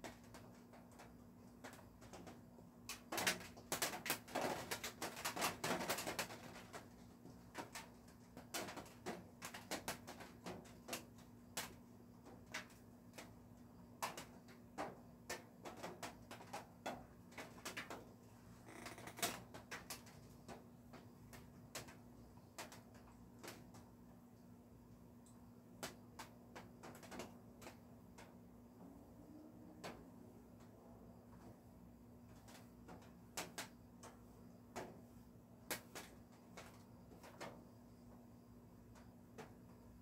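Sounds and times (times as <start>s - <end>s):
raindrops tapping on roof: 0.0s - 24.0s, 25.2s - 28.5s, 32.2s - 35.0s
faint steady hum: 0.0s - 40.0s.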